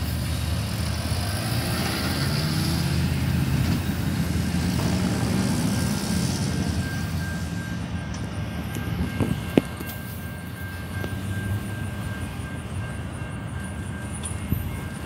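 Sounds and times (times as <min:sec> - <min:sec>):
cars driving over crossing: 0:00.0 - 0:15.0
freight train rumble: 0:00.0 - 0:15.0.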